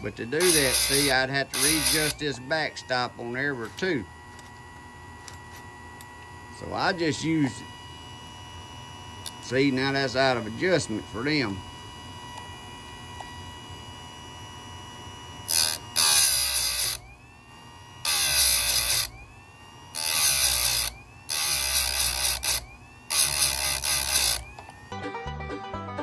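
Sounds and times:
chain sharpener grinding teeth: 0.0s - 2.5s, 15.5s - 17.0s, 18.0s - 19.1s, 19.9s - 24.7s
motor whine: 0.0s - 25.0s.

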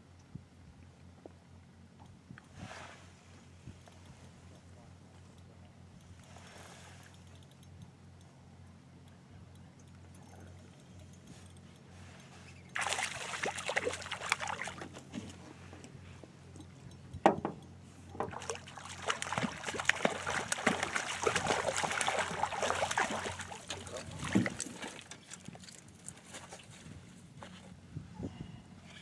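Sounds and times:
fish splashing at the surface: 12.8s - 15.0s, 18.3s - 25.1s.

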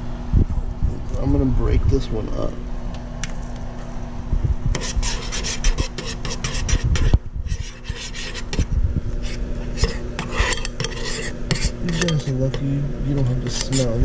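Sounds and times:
metal spoon scraping saucepan: 4.8s - 12.3s, 13.2s - 14.0s.

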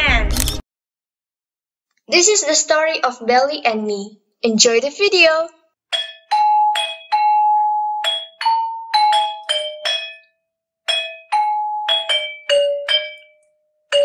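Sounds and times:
mallet percussion tune: 5.9s - 10.3s, 10.9s - 14.0s.

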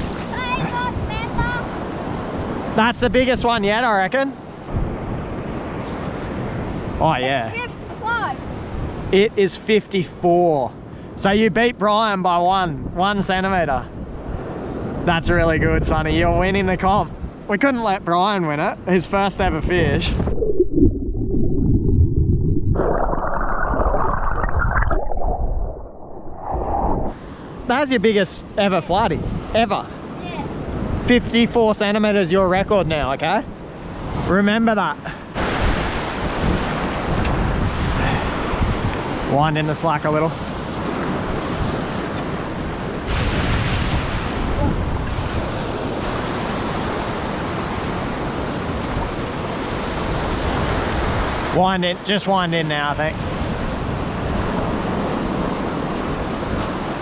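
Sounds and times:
wind rumbling on microphone: 0.0s - 3.6s, 4.6s - 7.0s, 12.5s - 17.5s, 19.2s - 27.7s, 28.8s - 29.7s, 35.4s - 39.6s, 40.3s - 51.6s, 53.0s - 57.0s
ocean surf washing up beach: 0.0s - 20.4s, 26.8s - 57.0s
muffled underwater surf: 18.8s - 27.7s, 35.0s - 57.0s.

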